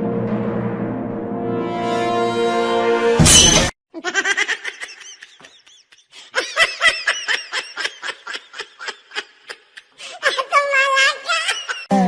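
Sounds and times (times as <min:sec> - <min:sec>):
person laughing: 0:03.9 - 0:11.9.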